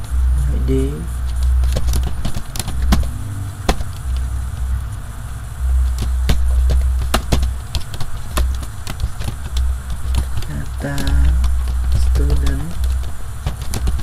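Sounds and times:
low rumble: 2.4 - 7.8.

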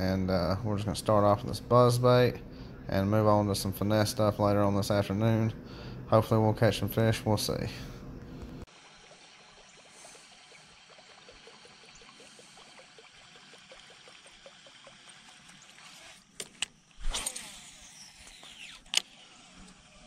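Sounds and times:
faint rhythmic ticking: 8.9 - 15.8
fishing reel whirring: 9.5 - 20.0
fishing reel click: 15.9 - 19.1.

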